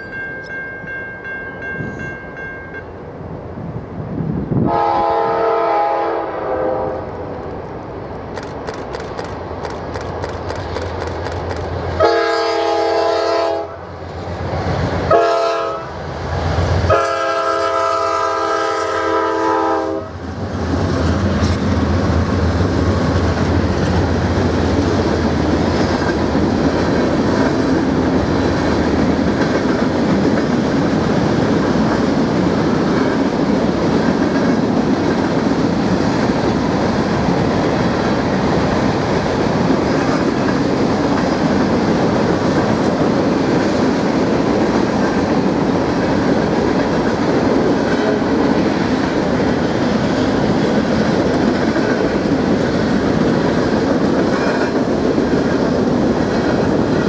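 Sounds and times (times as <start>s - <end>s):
locomotive air horn blasts: 4.6s - 7.3s, 12.0s - 13.9s, 15.1s - 15.9s, 16.9s - 20.2s
train wheels rumbling and clattering: 7.0s - 12.2s, 20.2s - 57.0s.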